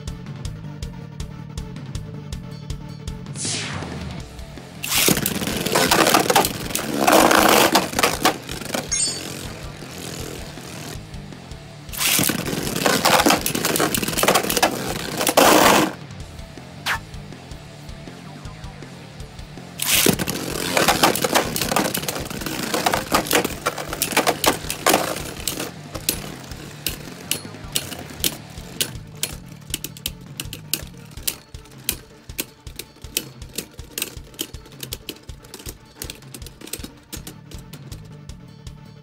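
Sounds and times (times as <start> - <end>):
spinning tops clashing and rattling: 4.8 - 11.0, 11.9 - 16.0, 19.8 - 37.9.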